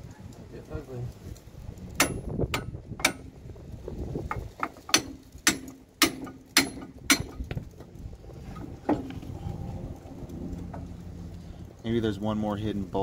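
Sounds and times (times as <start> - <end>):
hammer striking metal hub: 2.0 - 3.3, 4.6 - 7.5.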